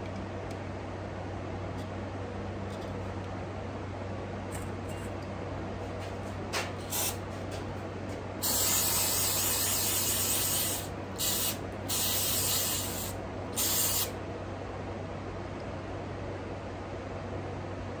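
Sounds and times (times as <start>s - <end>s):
pressurized spray hissing: 8.4s - 14.1s.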